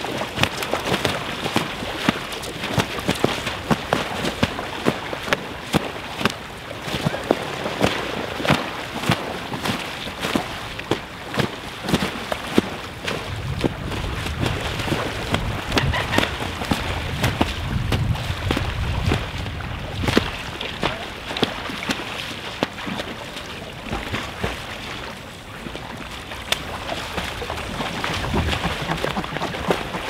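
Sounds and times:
swans splashing in water: 0:00.0 - 0:30.0
wings slapping water surface: 0:00.0 - 0:30.0
wind rumble on microphone: 0:09.7 - 0:22.0, 0:22.6 - 0:30.0.

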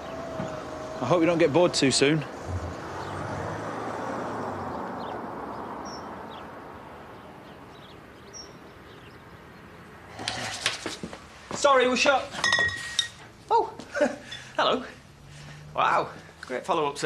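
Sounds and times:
car driving off: 0:00.0 - 0:08.0.

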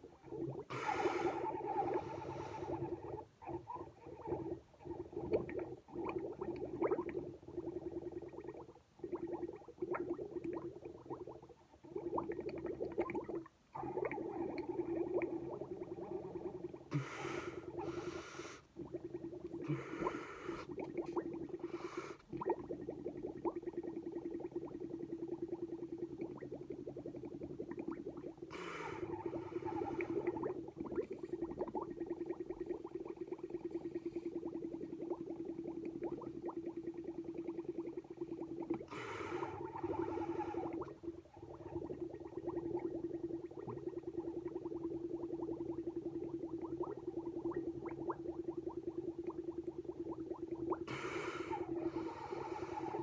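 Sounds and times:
breath drawn in through nose: 0:00.7 - 0:02.9, 0:16.9 - 0:18.7, 0:19.6 - 0:20.8, 0:50.9 - 0:53.0
milk bubbling through straw: 0:01.3 - 0:50.9, 0:51.5 - 0:53.0.

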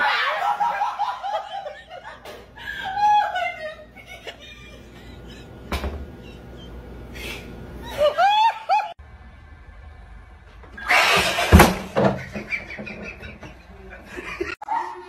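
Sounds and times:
woman laughing: 0:00.0 - 0:09.0, 0:12.2 - 0:15.0.

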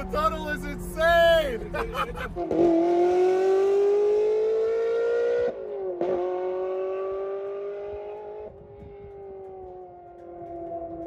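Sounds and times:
sports car engine accelerating: 0:00.0 - 0:11.0.

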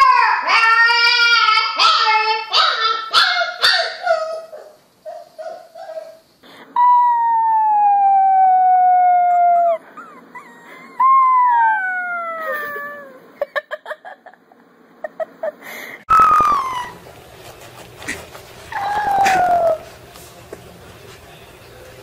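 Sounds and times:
puppy howling: 0:06.8 - 0:13.3, 0:16.1 - 0:17.1, 0:18.7 - 0:20.0
puppy whining: 0:06.8 - 0:13.4, 0:16.1 - 0:20.0.

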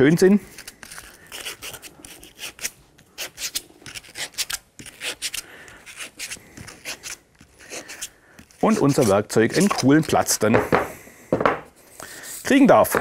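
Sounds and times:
sandpaper scratching wood: 0:00.5 - 0:10.5.

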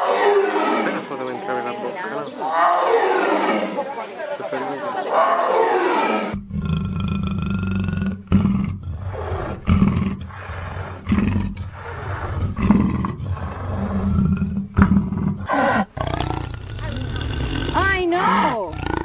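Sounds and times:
panther growling: 0:05.1 - 0:19.0.

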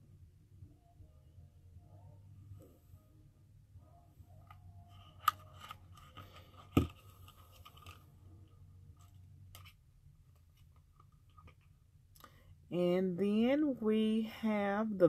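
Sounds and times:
thump on tabletop: 0:06.7 - 0:07.0.

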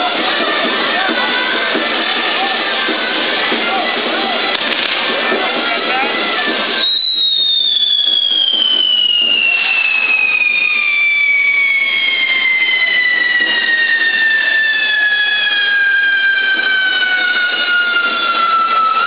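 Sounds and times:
whistling fireworks: 0:00.0 - 0:19.0.

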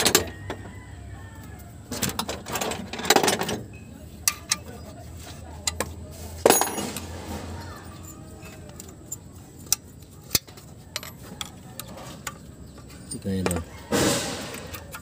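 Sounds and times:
metallic clinks and rattles: 0:06.4 - 0:07.2.

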